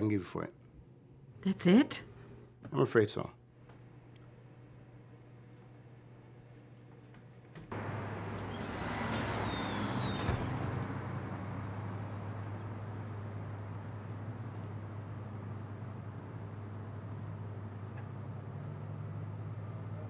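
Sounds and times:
vehicle passing: 7.7s - 14.5s
traffic hum: 7.7s - 20.0s.

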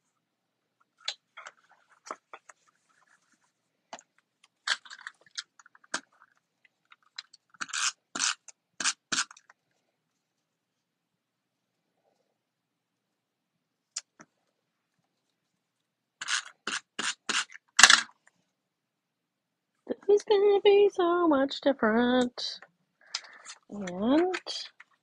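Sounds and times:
tape runner scraping on paper: 16.2s - 18.0s.

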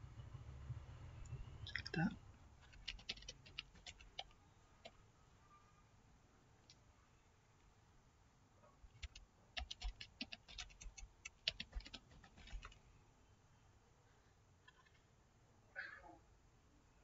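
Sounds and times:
typing on computer keyboard: 2.6s - 5.0s, 9.0s - 12.8s.

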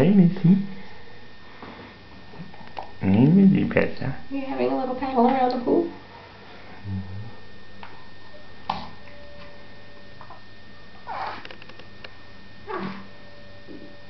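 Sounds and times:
steady low hum: 0.0s - 14.0s
baby snuffling and grunting: 12.7s - 13.1s.

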